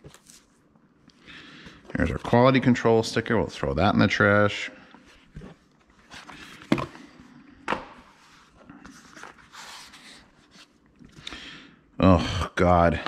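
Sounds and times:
rustling of card and paper: 0.0s - 0.7s, 5.0s - 7.2s, 8.1s - 11.2s.

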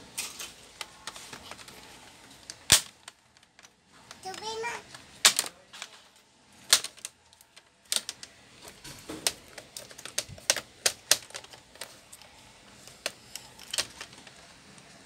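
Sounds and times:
plastic clips clicking: 6.7s - 8.4s, 9.1s - 14.4s.

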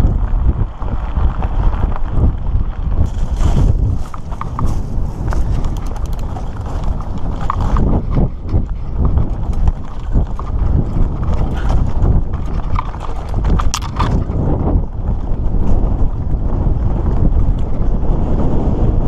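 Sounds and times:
bike rattling: 0.0s - 19.0s
steady low rumble: 0.0s - 19.0s
tyres striking stones: 9.0s - 14.4s.

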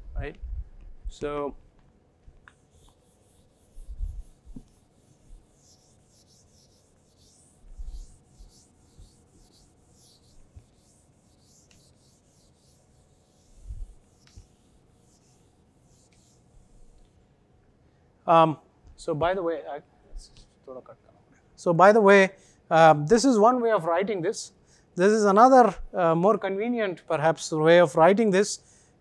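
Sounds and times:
eraser wiping whiteboard: 2.6s - 17.0s.

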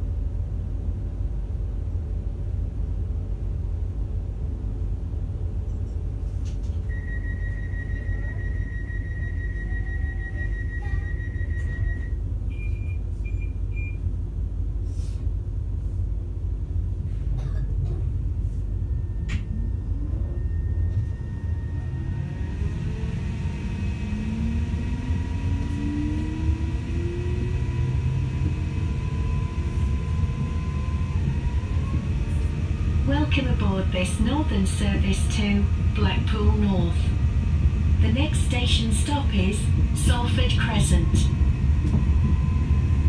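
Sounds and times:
train interior rumble: 0.0s - 43.0s
traction motor whine rising: 19.1s - 43.0s.

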